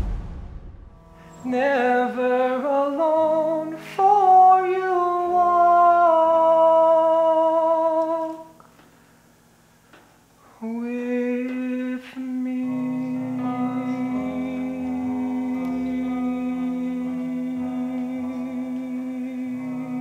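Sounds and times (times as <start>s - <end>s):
quiet musical accompaniment: 0.8s - 20.0s
person singing: 1.2s - 8.6s, 10.4s - 20.0s.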